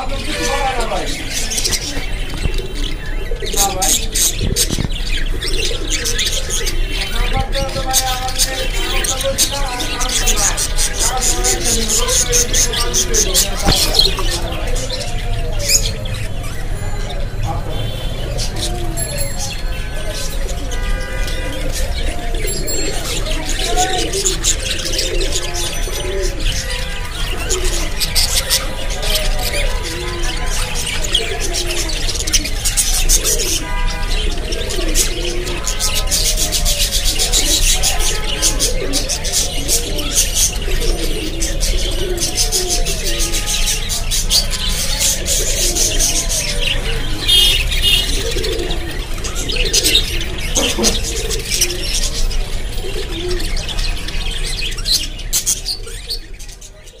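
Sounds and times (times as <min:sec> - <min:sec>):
budgerigars chattering and chirping: 0:00.0 - 0:57.0.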